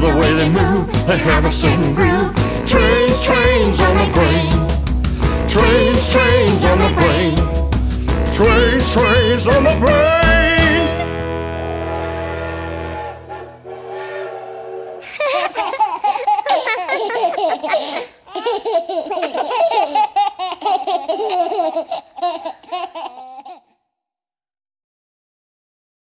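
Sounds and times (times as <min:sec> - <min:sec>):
children's song chord: 0:05.3 - 0:07.4, 0:08.3 - 0:14.4
children and adults laughing: 0:15.0 - 0:23.6.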